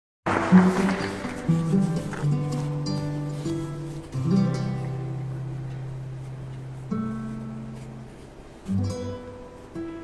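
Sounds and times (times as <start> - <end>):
plucked string instrument notes: 0.3 - 10.0.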